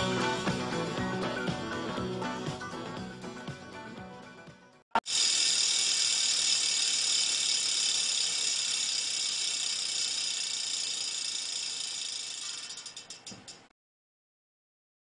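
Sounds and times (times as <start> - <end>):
small geared motor whirring: 5.0 - 13.2.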